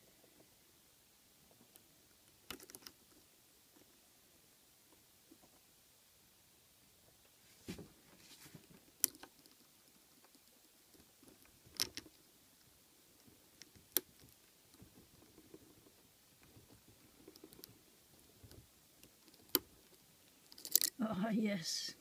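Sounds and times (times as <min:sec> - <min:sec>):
lock pick scraping in keyway: 0:20.4 - 0:21.0.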